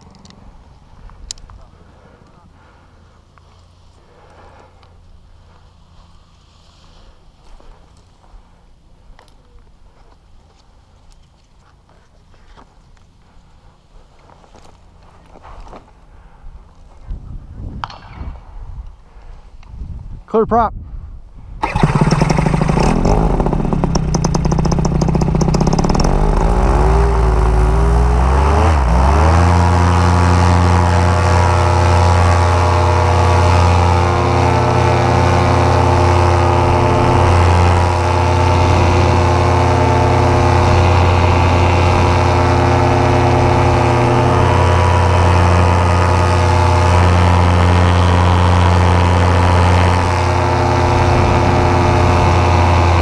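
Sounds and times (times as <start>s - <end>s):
paramotor engine and propeller: 21.6s - 53.0s.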